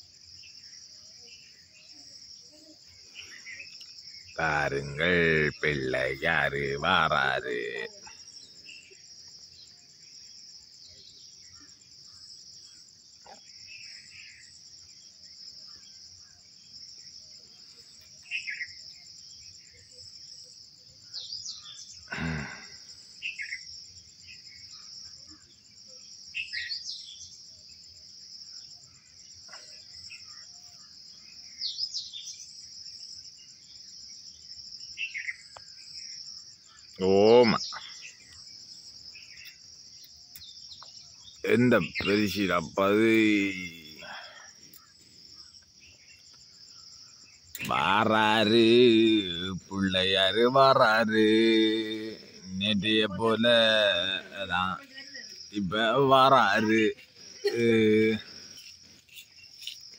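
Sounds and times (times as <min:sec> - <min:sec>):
crickets and insects chirring: 0:00.0 - 0:59.9
person calling out: 0:04.4 - 0:08.1, 0:22.1 - 0:22.7, 0:41.5 - 0:44.2, 0:47.6 - 0:58.4
short bird calls: 0:35.0 - 0:35.7.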